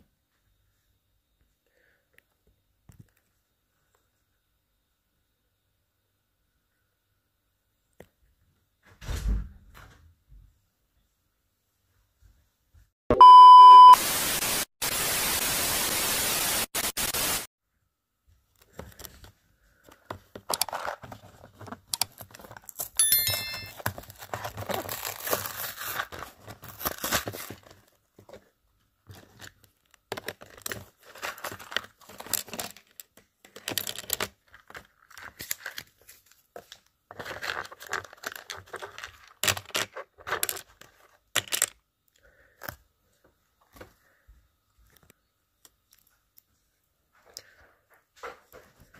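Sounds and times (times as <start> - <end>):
loud steady beep: 13.1 - 14.0
loud static hiss: 13.8 - 17.5
small plastic pieces clicking: 20.3 - 23.0, 29.6 - 36.1, 37.2 - 41.8
plastic bag rustling and crinkling: 23.7 - 33.1, 34.4 - 41.1.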